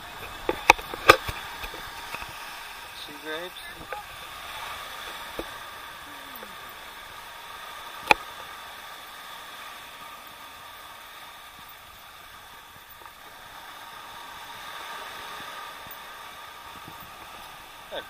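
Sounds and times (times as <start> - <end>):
small waves washing over rocks: 0.0 - 18.0
wind on microphone: 14.2 - 18.0.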